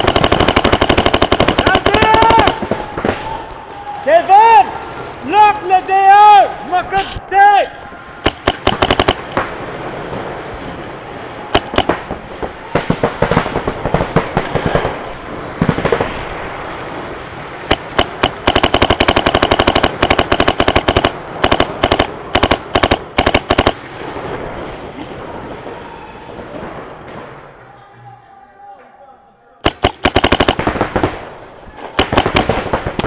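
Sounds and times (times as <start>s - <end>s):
paintball markers firing: 0.0s - 3.4s, 8.2s - 9.4s, 11.6s - 12.0s, 17.7s - 23.8s, 29.6s - 31.1s, 31.8s - 33.0s.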